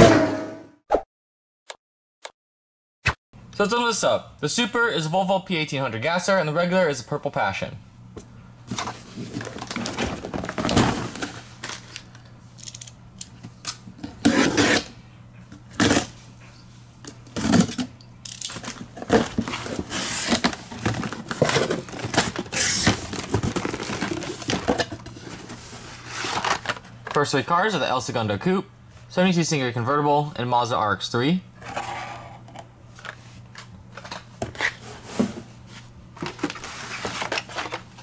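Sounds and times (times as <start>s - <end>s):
plastic blister packs clattering: 8.7s - 12.9s, 17.4s - 25.6s, 26.2s - 27.3s, 36.2s - 38.0s
cardboard and tape tearing: 14.2s - 14.9s, 15.7s - 16.1s, 18.7s - 25.4s.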